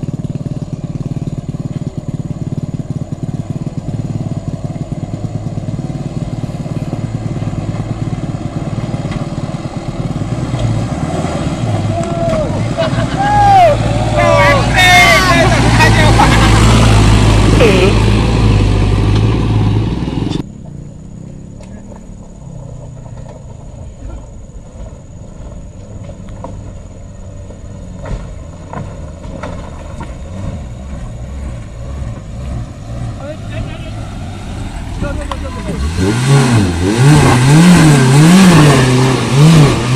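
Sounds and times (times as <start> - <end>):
diesel truck engine under load: 0.0 - 39.9
stones clicking under tyres: 6.2 - 11.2, 20.4 - 31.8.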